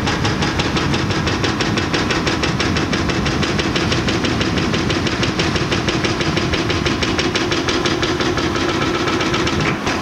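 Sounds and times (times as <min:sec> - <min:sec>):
diesel engine drone: 0:00.0 - 0:10.0
rapid clatter of impacts: 0:00.0 - 0:10.0.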